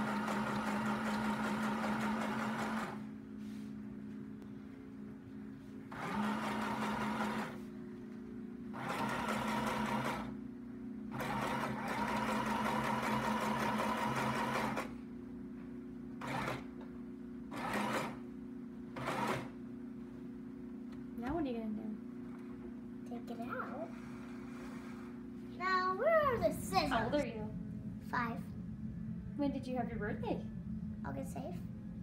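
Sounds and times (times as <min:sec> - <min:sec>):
sewing machine stitching: 0:00.0 - 0:03.0, 0:05.9 - 0:07.6, 0:08.8 - 0:10.3, 0:11.1 - 0:14.9, 0:16.2 - 0:16.7, 0:17.5 - 0:18.2, 0:19.0 - 0:19.5.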